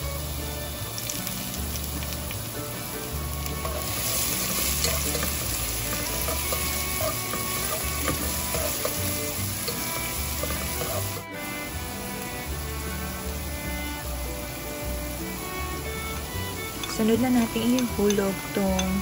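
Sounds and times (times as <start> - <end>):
garlic and onion sizzling in oil: 0.0 - 19.0
spatula scraping and clicking: 3.5 - 11.2.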